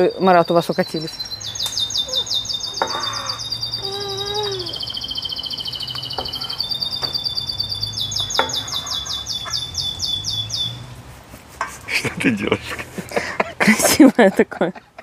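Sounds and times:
songbird trilling: 0.0s - 10.8s.

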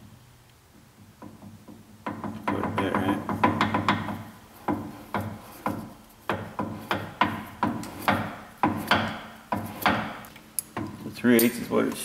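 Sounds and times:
tools knocking and clinking on metal: 1.2s - 12.0s.

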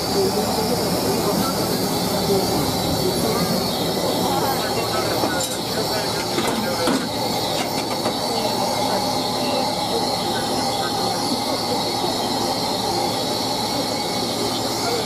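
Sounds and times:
steam hissing: 0.0s - 15.0s.

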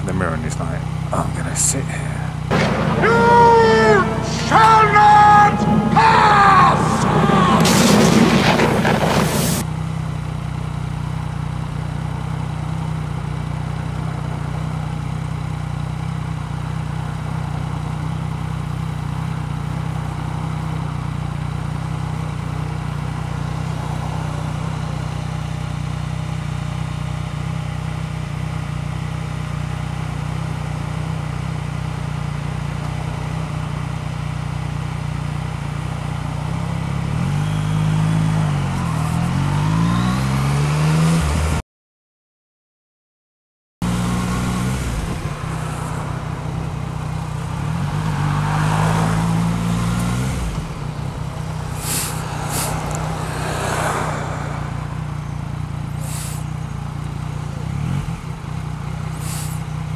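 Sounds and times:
motorcycle engine idling: 0.0s - 8.9s, 9.6s - 39.6s, 43.8s - 59.9s
brief boom: 2.5s - 4.6s, 5.5s - 9.6s.

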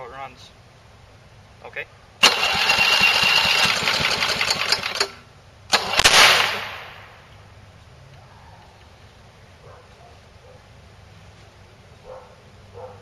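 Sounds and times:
small lawnmower engine running: 2.2s - 6.2s
sharp crack: 5.7s - 7.4s.

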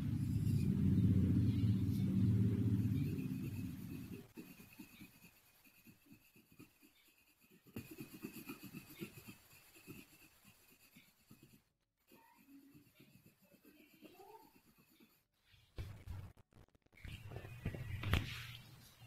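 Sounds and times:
low rumble: 0.0s - 4.2s
pencil scratching on paper: 0.0s - 15.3s.

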